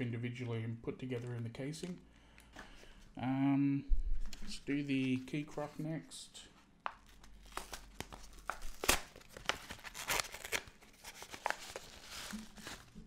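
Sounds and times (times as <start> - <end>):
packaging pouch crinkling: 7.0 - 13.0.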